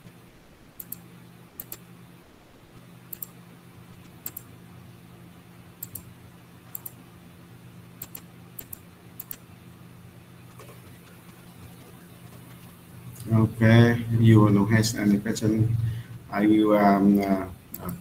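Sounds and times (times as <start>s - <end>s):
steady low hum: 0.0s - 18.0s
computer mouse double clicks: 1.6s - 1.8s, 8.0s - 9.4s.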